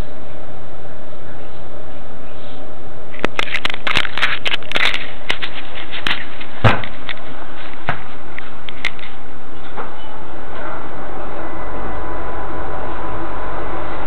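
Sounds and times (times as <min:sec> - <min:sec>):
microphone rubbing crackles: 0:03.2 - 0:09.2
metro car hum: 0:04.4 - 0:14.0
heavy thump: 0:06.6 - 0:07.0.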